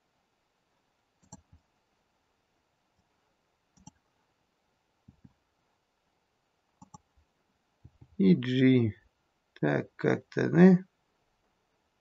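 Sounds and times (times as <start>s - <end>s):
mouse and keyboard clicks: 1.2s - 1.6s, 3.8s - 4.0s, 6.8s - 7.1s.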